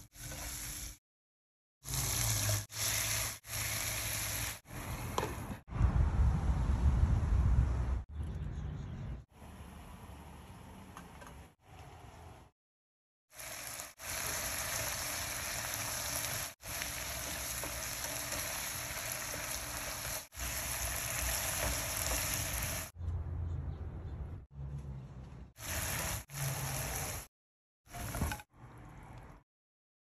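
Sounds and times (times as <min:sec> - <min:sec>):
food sizzling in frying pan: 0:01.8 - 0:04.6, 0:13.3 - 0:22.9, 0:25.6 - 0:27.3
spatula turning food: 0:14.2 - 0:22.7.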